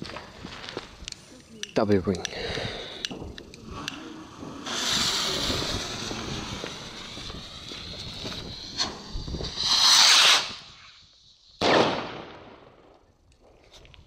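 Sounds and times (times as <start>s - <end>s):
hissing burst: 2.6s - 12.0s
firework rocket hissing: 2.6s - 12.4s.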